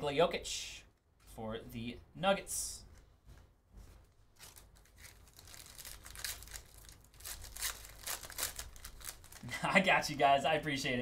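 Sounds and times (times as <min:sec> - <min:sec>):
cards rustling: 0:02.9 - 0:09.5
wrapper tearing and crinkling: 0:04.4 - 0:09.5.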